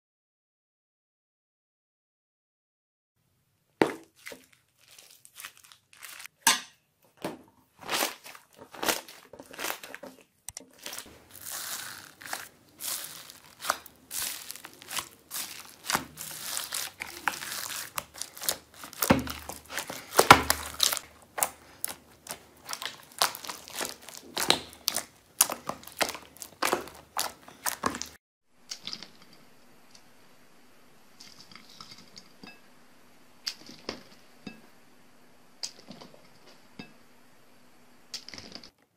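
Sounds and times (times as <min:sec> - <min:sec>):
slime crackling and squelching: 0:03.8 - 0:06.3, 0:07.7 - 0:29.0
fingers moving wet water beads: 0:07.8 - 0:29.2
faint steady hum: 0:28.5 - 0:38.6.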